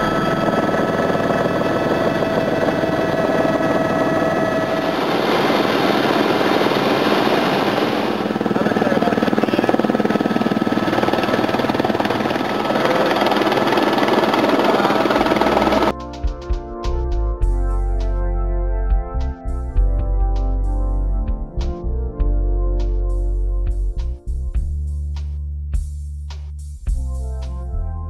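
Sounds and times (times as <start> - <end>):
helicopter turbine whine: 0.0 - 15.9
helicopter rotor beat: 0.0 - 16.4.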